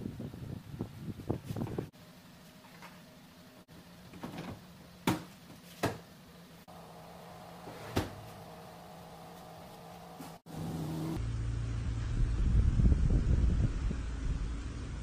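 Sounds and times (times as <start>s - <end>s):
steady low hum: 6.1s - 15.0s.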